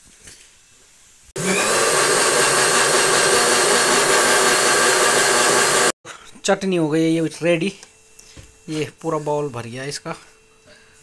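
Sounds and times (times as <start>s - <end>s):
mixer grinder motor whine: 1.4s - 6.0s.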